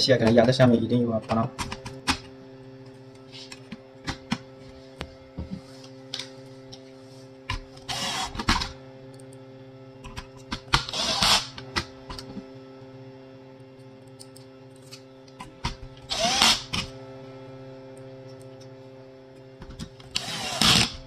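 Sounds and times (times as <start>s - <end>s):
steady low hum: 0.0s - 21.0s
electric screwdriver driving screws: 7.8s - 8.8s, 10.8s - 11.6s, 16.1s - 16.9s, 20.0s - 21.0s.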